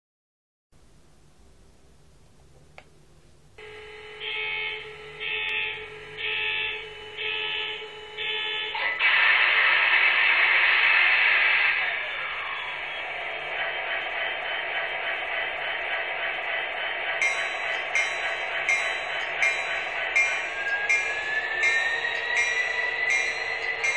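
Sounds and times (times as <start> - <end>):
steady hum: 0.8 - 8.8, 10.0 - 23.9
beeps: 3.6 - 8.8.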